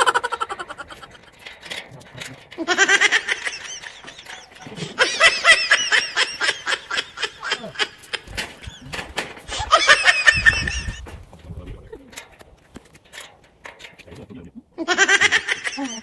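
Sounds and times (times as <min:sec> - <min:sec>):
high-pitched comic chattering: 0:00.0 - 0:01.2.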